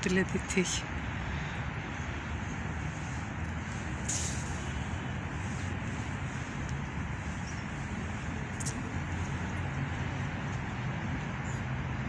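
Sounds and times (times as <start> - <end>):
city traffic hum: 0.0 - 12.0
brief hiss: 4.0 - 4.9.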